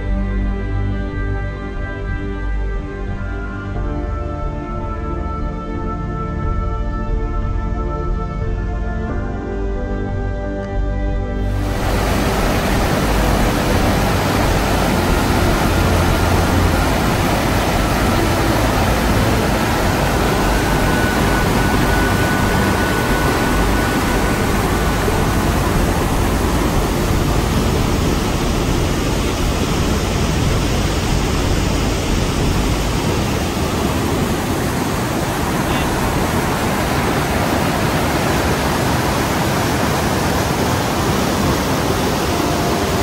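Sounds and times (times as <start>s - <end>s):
waterfall rushing water: 11.4s - 43.0s.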